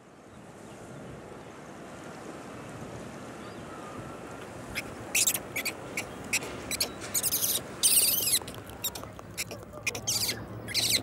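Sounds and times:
sea: 0.0 - 11.0
wind: 0.0 - 11.0
shrill animal calls: 4.8 - 11.0.

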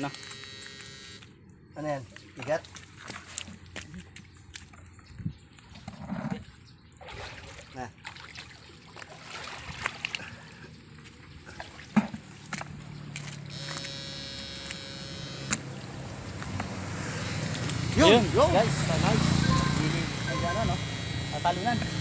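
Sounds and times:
electric buzz of fish shocker: 0.0 - 1.2, 13.5 - 22.0
water splashing: 2.2 - 4.9, 5.6 - 13.8.

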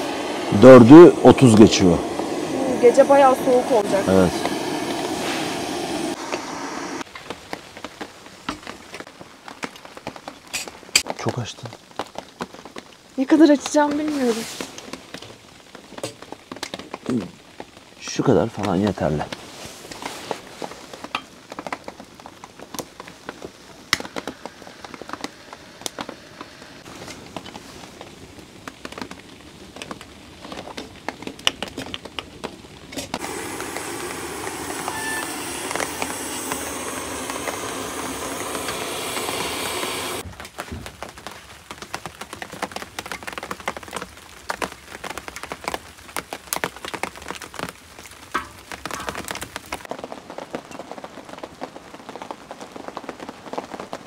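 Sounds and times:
loud steady hiss: 0.0 - 7.1, 33.0 - 40.3
wood fire crackling: 0.0 - 54.0
sharp pops: 33.1 - 40.2.

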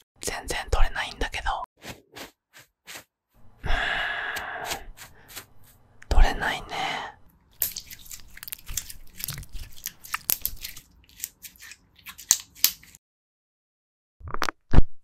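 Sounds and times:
slime squelching with crackles: 7.5 - 13.0.

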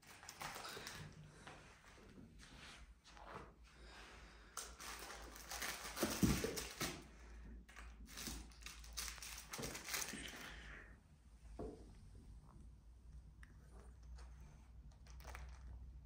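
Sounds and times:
fabric toy crinkling and rustling: 0.0 - 1.2, 4.7 - 7.1, 7.7 - 10.5.

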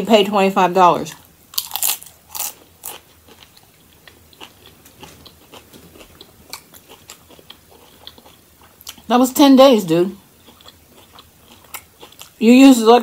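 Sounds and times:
tortilla chip crunching: 1.5 - 9.1, 10.3 - 12.4.

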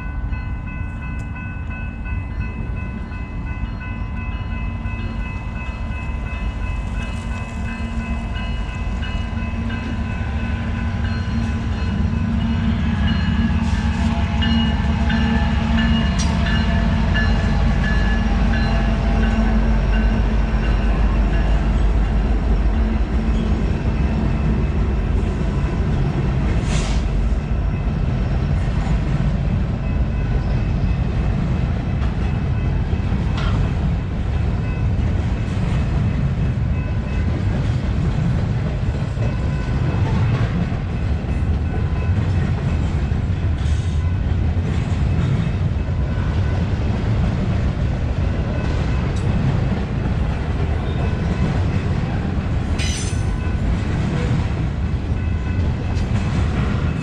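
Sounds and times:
crossing bell ringing: 0.0 - 26.1, 29.7 - 37.8, 38.8 - 47.3, 48.1 - 57.0
steel wheels rumbling on rail: 0.0 - 57.0
sharp metal clanks: 52.8 - 53.4.

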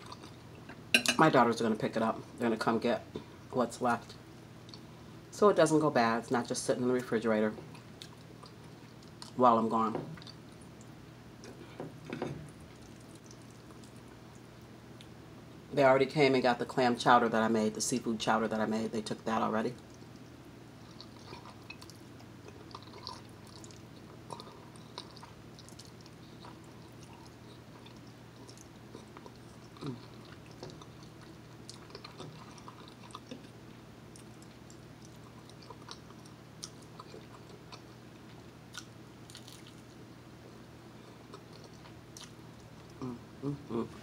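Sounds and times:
low steady hum: 0.0 - 44.0
chewing mouth sounds: 12.7 - 15.1, 19.8 - 37.9, 41.2 - 43.1.

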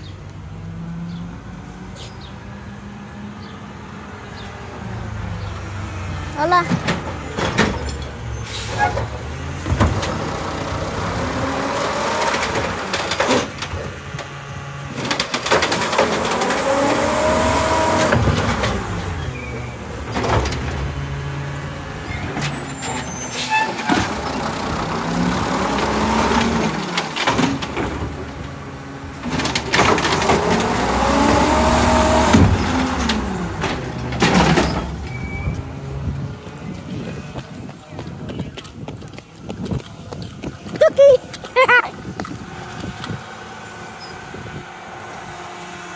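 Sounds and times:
garbage truck engine revving: 0.4 - 36.5.

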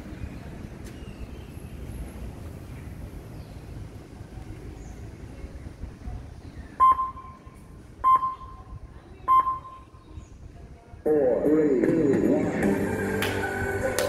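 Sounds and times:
short electronic beeps: 6.8 - 7.4, 8.0 - 8.6, 9.2 - 9.9.

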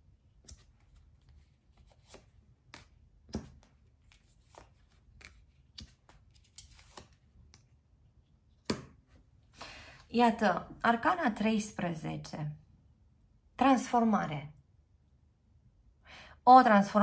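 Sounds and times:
cards tapping on a table: 2.0 - 3.8, 8.6 - 9.0.

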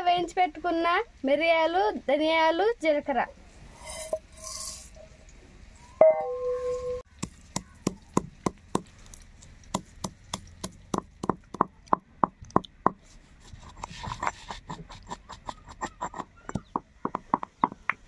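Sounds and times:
stone pestle pounding in mortar: 9.7 - 13.0, 14.0 - 18.0.

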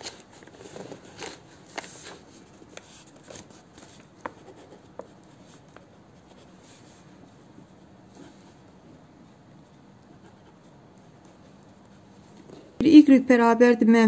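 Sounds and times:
pen scratching on paper: 4.2 - 6.6.

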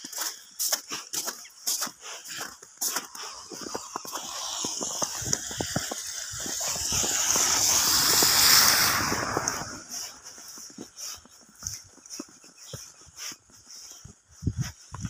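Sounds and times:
footsteps crunching in snow: 0.0 - 15.0
car tyres hissing through slush: 0.1 - 11.7.

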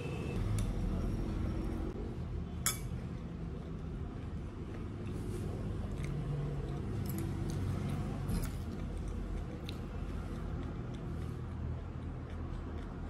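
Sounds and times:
spoon clinking against bowl: 2.6 - 3.0.

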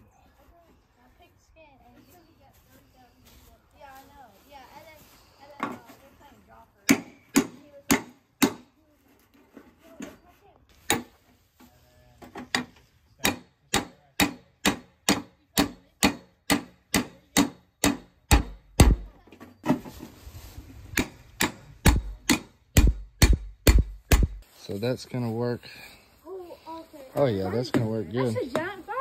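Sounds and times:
hammer striking hatchet through metal: 12.5 - 19.0, 21.0 - 24.4
dull thuds: 17.4 - 20.1, 20.9 - 24.4.

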